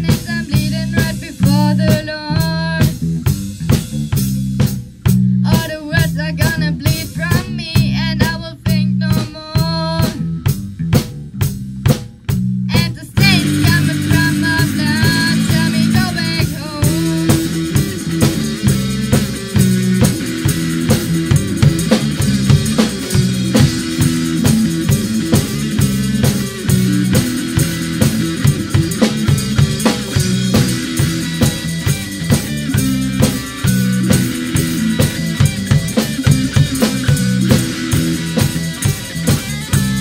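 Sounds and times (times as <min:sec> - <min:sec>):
person singing: 0:00.0 - 0:03.0, 0:05.5 - 0:10.2, 0:12.7 - 0:17.6
electric guitar: 0:00.0 - 0:11.1, 0:12.7 - 0:40.0
drum kit: 0:00.0 - 0:40.0
electric bass line: 0:00.0 - 0:40.0.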